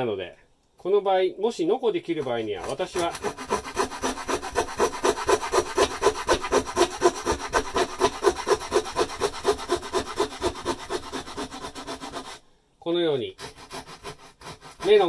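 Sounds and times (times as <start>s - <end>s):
hand saw cutting wood: 2.2s - 12.4s, 13.3s - 15.0s.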